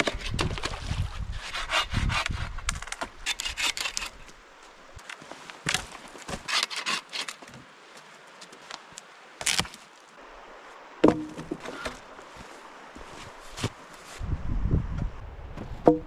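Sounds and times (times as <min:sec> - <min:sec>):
wooden poles knocking together: 0:11.0 - 0:12.0, 0:15.8 - 0:16.0.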